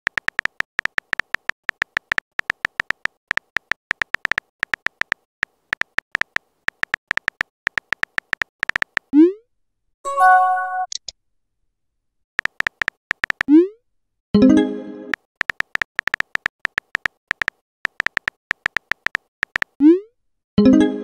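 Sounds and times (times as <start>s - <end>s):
phone keyboard tap clicks: 0.1s - 9.1s, 12.4s - 13.5s, 15.4s - 19.8s.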